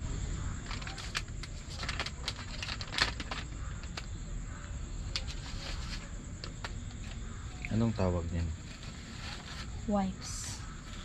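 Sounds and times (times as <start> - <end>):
insects chirring: 0.0 - 11.0
plastic packet crinkling: 0.6 - 4.1.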